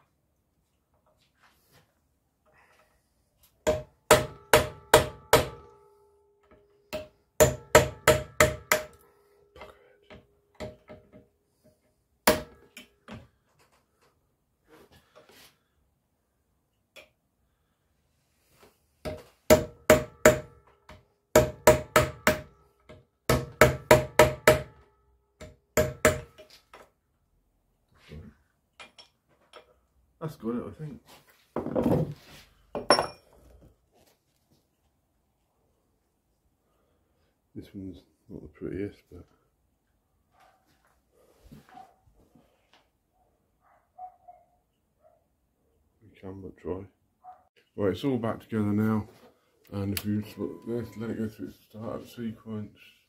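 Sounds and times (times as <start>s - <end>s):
hammer striking metal punch: 3.6s - 5.7s, 6.9s - 9.0s, 12.3s - 12.6s, 25.4s - 26.5s.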